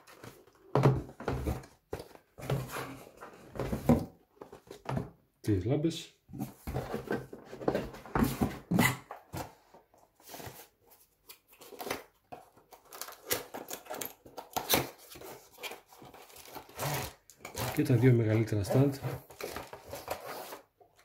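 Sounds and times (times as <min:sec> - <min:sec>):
cardboard boxes knocking and rustling: 0:00.1 - 0:05.2, 0:06.3 - 0:10.7.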